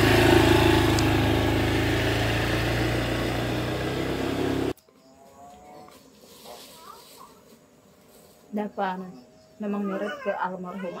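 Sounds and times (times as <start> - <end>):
scooter engine humming: 0.0 - 4.8.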